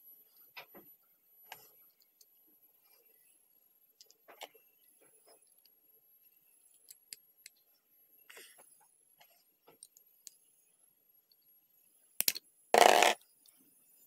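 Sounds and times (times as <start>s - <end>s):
plastic parts clicking: 12.2s - 13.2s.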